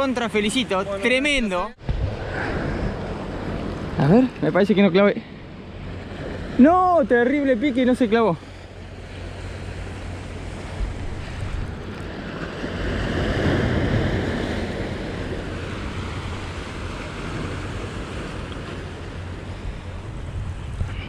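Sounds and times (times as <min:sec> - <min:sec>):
sea waves breaking against rocks: 0:00.0 - 0:21.0
wind on microphone: 0:00.7 - 0:04.4, 0:09.5 - 0:21.0.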